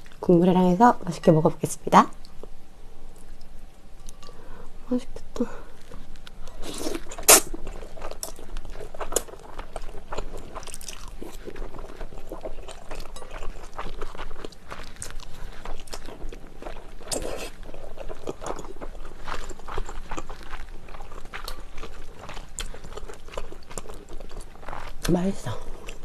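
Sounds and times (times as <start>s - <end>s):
slurping and chewing noodles: 5.8s - 26.0s.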